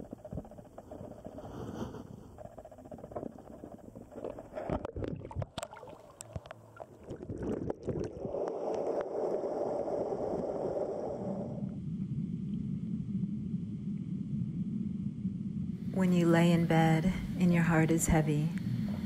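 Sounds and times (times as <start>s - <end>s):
underwater stream rushing: 3.0s - 14.3s.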